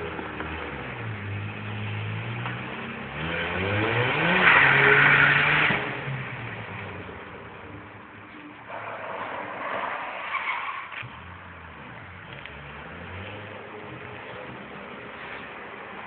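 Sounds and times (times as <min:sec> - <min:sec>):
rotary engine revving: 0:02.9 - 0:06.2
tyres screeching: 0:08.7 - 0:11.1.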